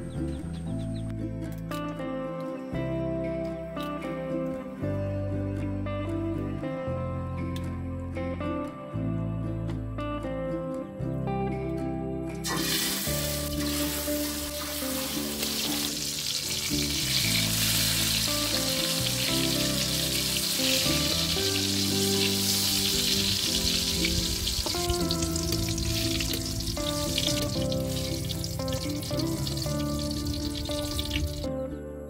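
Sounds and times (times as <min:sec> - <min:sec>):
soft background music: 0:00.0 - 0:32.0
oil sizzling in a wok: 0:12.4 - 0:31.5.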